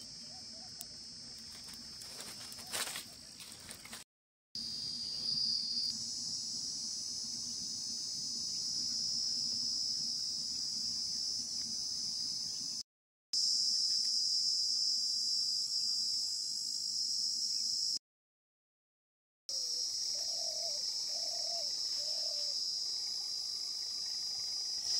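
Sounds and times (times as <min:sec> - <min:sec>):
crickets chirring: 0:00.0 - 0:04.0, 0:04.6 - 0:12.8, 0:19.5 - 0:24.9.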